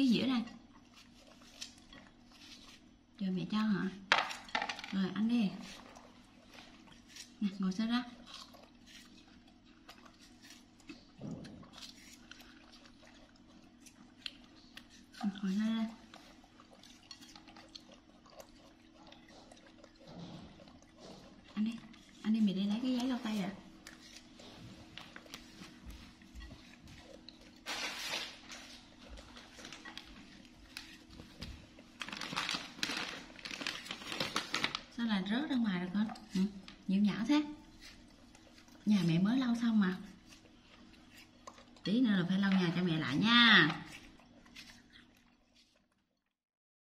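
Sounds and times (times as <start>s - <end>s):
faint low hum: 0.0s - 46.3s
watermelon being chewed: 0.0s - 46.4s
paper tissues crinkling: 27.6s - 35.0s.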